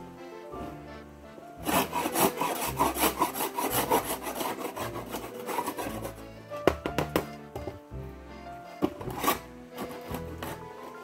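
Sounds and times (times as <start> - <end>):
background music with held notes: 0.0 - 11.0
scraping strokes on wood: 1.6 - 7.7, 8.8 - 11.0
sharp knocks: 6.6 - 7.8.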